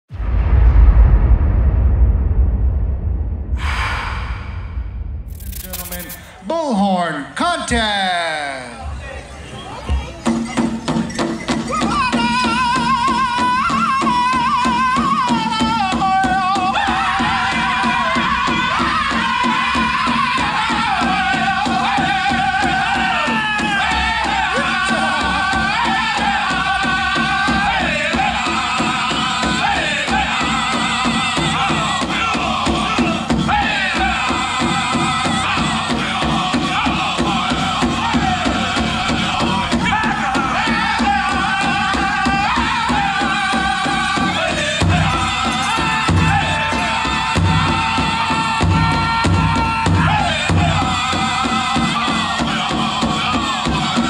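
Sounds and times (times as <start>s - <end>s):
steady drumbeat: 3.6s - 6.7s, 11.6s - 54.0s
high-pitched group singing: 11.7s - 54.0s.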